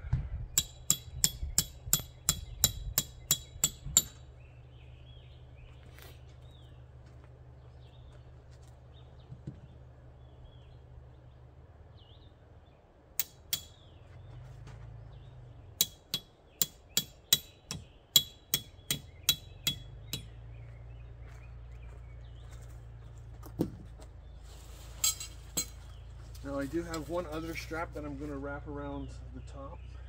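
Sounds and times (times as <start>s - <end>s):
hammer driving a stake: 0.6s - 4.3s, 13.2s - 13.9s, 15.8s - 20.4s.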